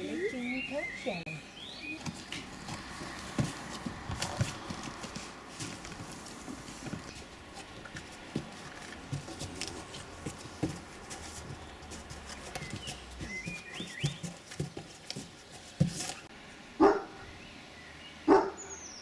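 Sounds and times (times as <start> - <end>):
puppies knocking and scuffling: 1.9 - 16.3
dog barking loudly: 16.8 - 17.2, 18.3 - 18.7.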